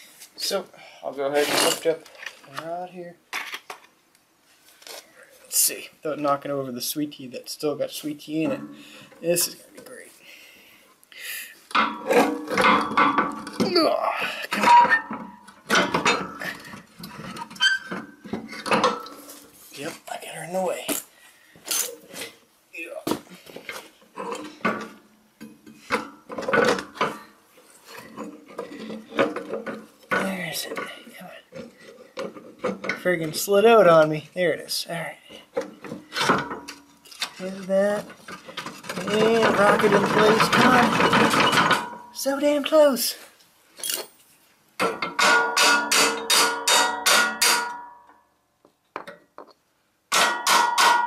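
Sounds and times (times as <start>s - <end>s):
steel parts clanking and scraping: 8.3s - 9.9s, 11.7s - 13.8s, 14.5s - 19.6s, 21.7s - 22.4s, 23.6s - 33.3s, 35.6s - 42.4s, 43.8s - 48.0s
hammer striking metal: 45.1s - 48.1s, 50.1s - 51.0s.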